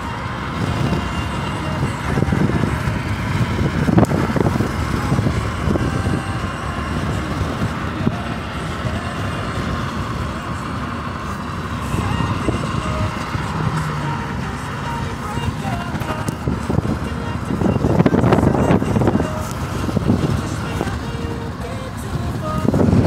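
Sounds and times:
car road and engine noise: 0.0 - 23.0.

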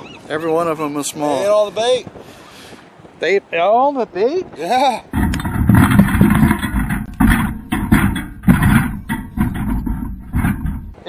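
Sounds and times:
wire ring knocking and rattling: 5.2 - 11.0.

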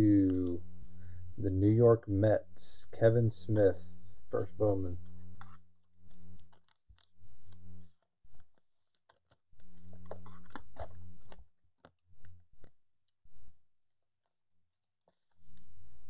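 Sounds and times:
low hum: 0.0 - 8.5
plastic sleeve crinkling and clicking: 5.4 - 12.8.

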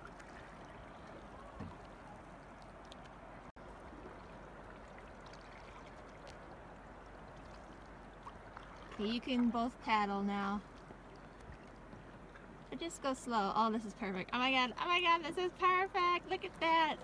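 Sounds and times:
canoe paddling on water: 0.0 - 17.0.

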